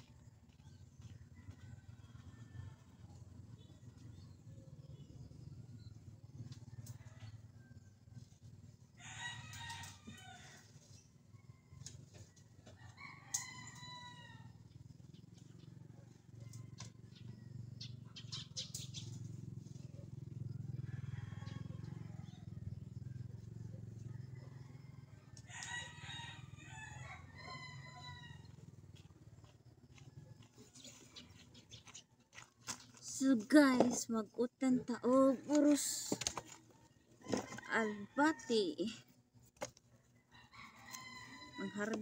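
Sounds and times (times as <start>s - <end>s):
rooster crowing: 1.3s - 3.1s, 8.9s - 10.7s, 12.7s - 14.7s, 20.7s - 23.0s, 24.0s - 28.6s, 37.2s - 38.9s, 40.1s - 42.0s.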